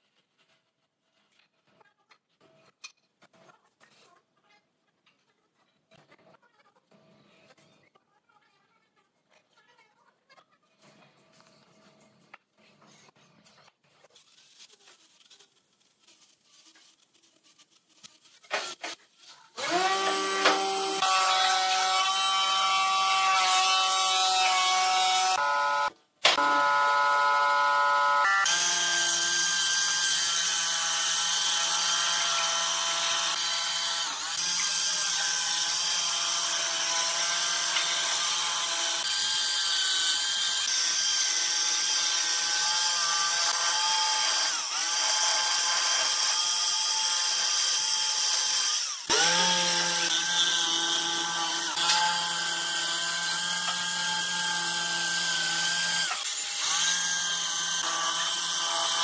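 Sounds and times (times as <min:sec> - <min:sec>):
jigsaw motor whining: 0:19.6 - 0:59.0
saw blade cutting wood: 0:19.6 - 0:59.0.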